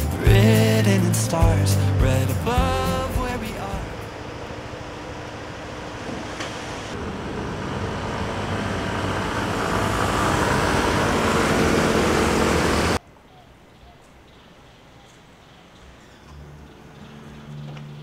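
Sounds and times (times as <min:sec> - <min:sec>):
cars passing: 0:03.2 - 0:13.0
motor scooters passing: 0:03.5 - 0:13.0
tyres hissing on wet road: 0:06.1 - 0:13.0.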